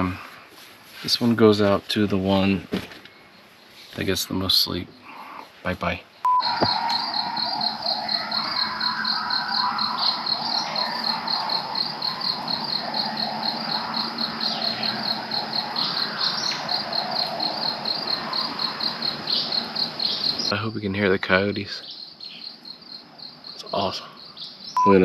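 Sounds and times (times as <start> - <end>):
night insects chirping: 0.0 - 25.0
distant coyotes howling and yipping: 6.2 - 25.0.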